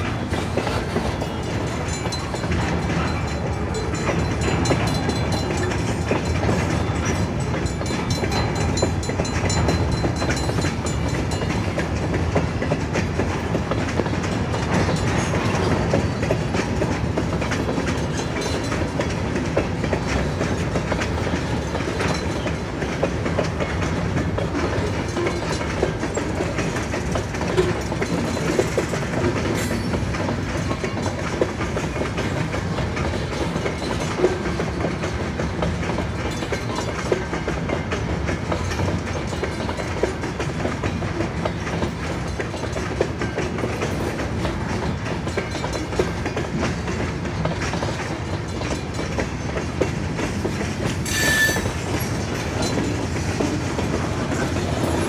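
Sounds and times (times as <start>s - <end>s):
freight train rumbling: 0.0s - 55.0s
wheels clacking over rail joints: 0.0s - 55.0s
short high squeal: 51.0s - 51.8s.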